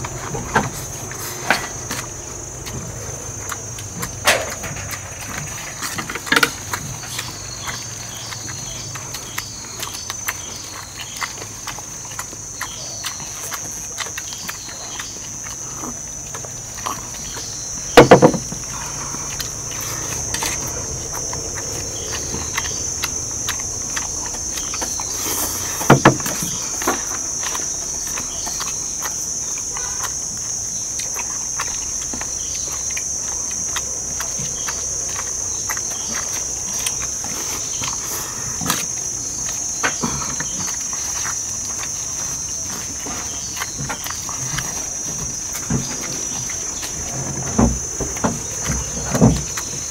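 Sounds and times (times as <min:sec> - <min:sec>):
insects droning: 0:00.0 - 0:49.9.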